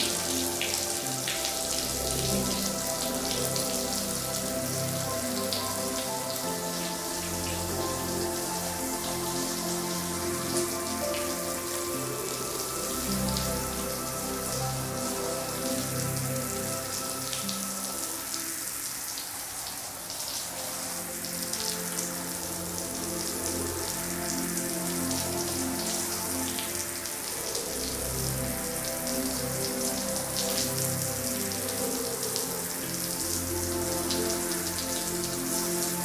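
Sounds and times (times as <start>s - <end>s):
soft background music: 0.0s - 36.0s
water sprinkling onto a rug: 0.0s - 36.0s.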